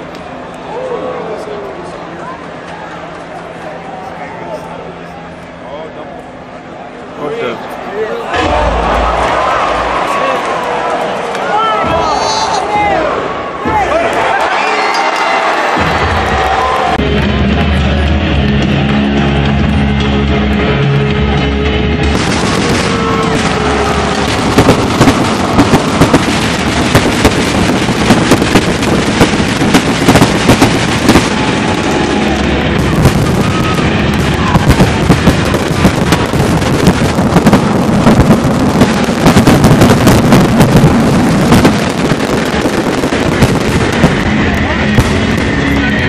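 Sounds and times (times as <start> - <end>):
loud crowd din: 0.0 - 46.0
pyrotechnic bangs and crackling: 8.3 - 11.2, 22.0 - 46.0.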